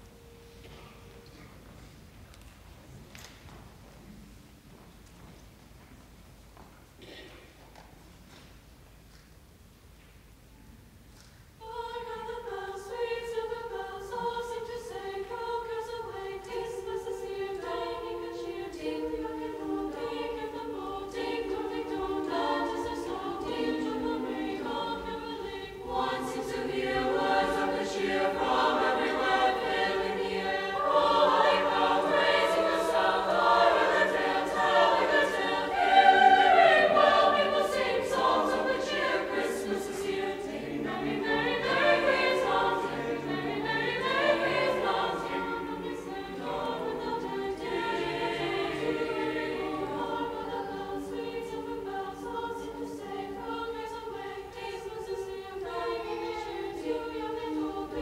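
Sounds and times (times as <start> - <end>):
choir singing: 0.0 - 1.6, 11.6 - 58.0.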